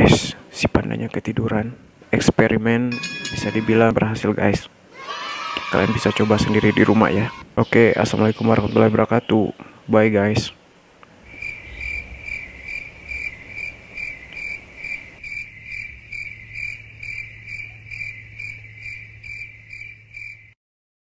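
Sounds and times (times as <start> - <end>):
low hum: 11.0 - 20.2
cricket chirping: 11.3 - 20.6.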